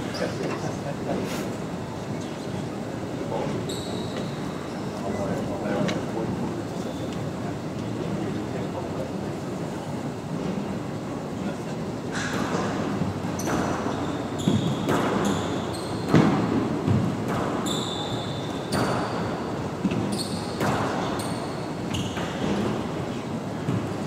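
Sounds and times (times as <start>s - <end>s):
shoes squeaking on wooden floor: 3.4s - 5.2s, 13.4s - 16.2s, 19.9s - 20.6s, 21.2s - 22.6s
squash ball hitting rackets and walls: 13.3s - 21.5s.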